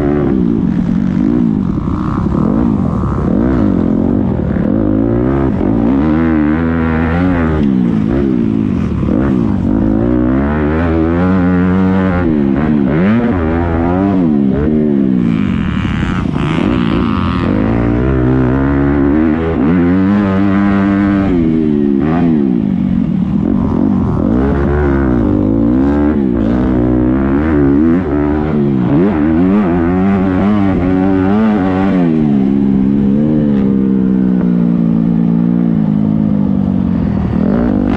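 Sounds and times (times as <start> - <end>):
dirt bike engine revving: 0.0 - 37.9.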